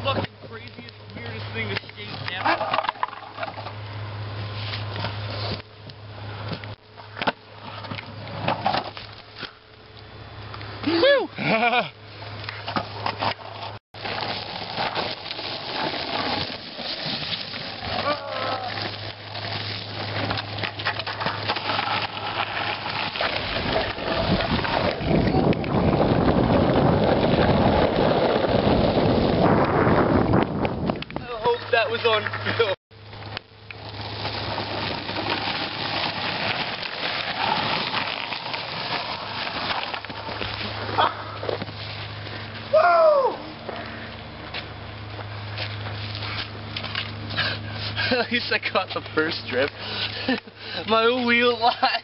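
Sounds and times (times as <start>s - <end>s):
longboard wheels rolling: 0.0s - 52.0s
footsteps on gravel: 14.0s - 28.4s, 33.8s - 48.1s.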